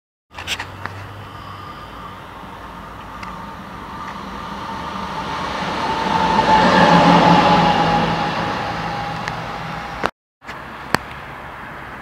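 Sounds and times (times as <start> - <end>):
diesel locomotive passing: 0.6 - 10.1
steady whine: 0.6 - 10.1.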